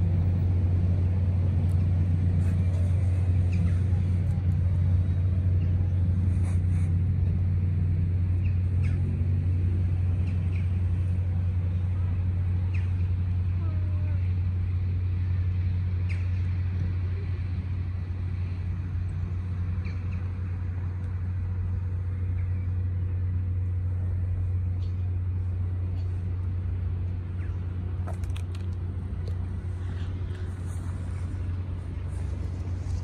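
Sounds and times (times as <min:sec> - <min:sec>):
low engine hum: 0:00.0 - 0:33.0.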